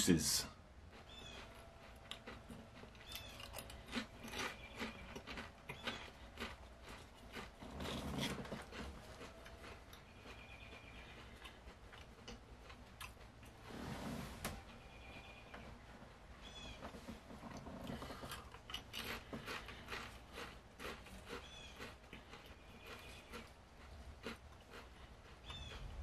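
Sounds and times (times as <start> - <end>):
crunching potato chips: 0.9 - 13.4, 17.9 - 26.0.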